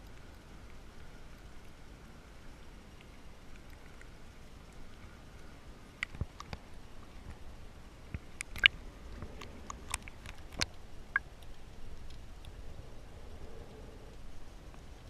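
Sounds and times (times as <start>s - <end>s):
low rumble of moving water: 0.0s - 15.0s
sharp clicks and pops underwater: 6.0s - 6.6s, 8.1s - 12.6s.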